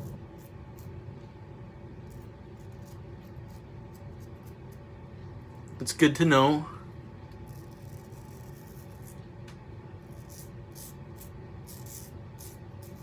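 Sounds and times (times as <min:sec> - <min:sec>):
steady low hum: 0:00.0 - 0:13.0
razor scraping stubble: 0:02.0 - 0:04.9, 0:07.3 - 0:09.3, 0:10.0 - 0:13.0.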